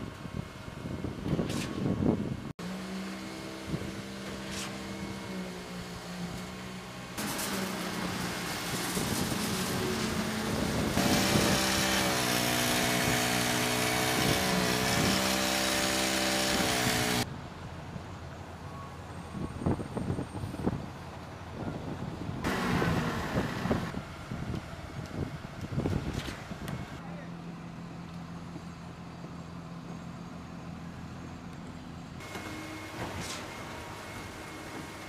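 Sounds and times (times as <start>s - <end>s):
wind on microphone: 0.0s - 2.5s, 8.7s - 12.1s, 19.3s - 27.0s.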